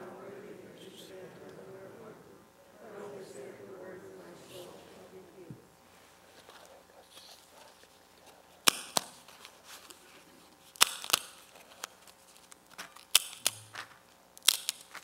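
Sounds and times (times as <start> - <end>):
sharp clicks and snaps from handling: 14.4 - 15.0.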